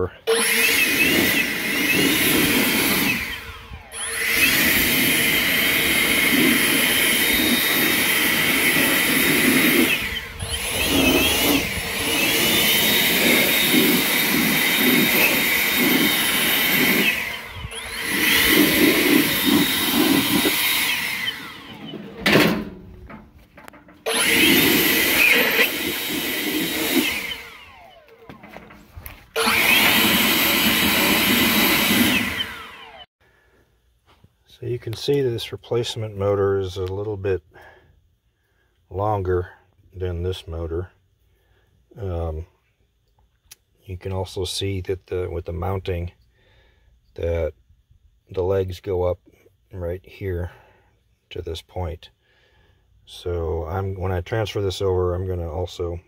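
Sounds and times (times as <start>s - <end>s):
leaf blower blasting and whining: 0.0s - 22.7s, 23.6s - 33.1s.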